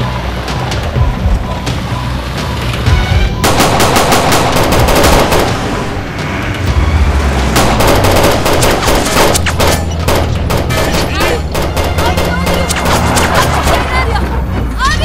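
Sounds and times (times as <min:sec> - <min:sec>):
automatic rifle fire: 0:03.4 - 0:05.8, 0:07.6 - 0:13.5.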